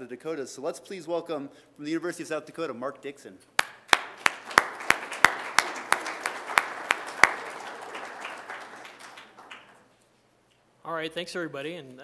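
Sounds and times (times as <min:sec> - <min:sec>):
audience applauding: 0:03.6 - 0:09.9
loud close hand claps: 0:03.6 - 0:09.9.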